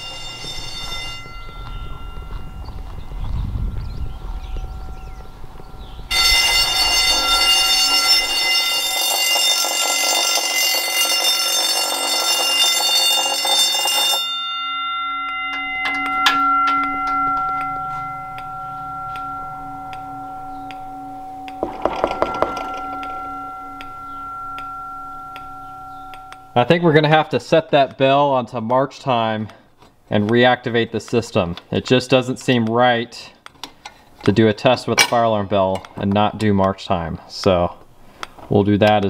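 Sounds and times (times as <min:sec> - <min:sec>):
quiet steady tones: 0:00.0 - 0:10.5, 0:12.0 - 0:39.0
electric fire alarm bell ringing: 0:00.0 - 0:27.6.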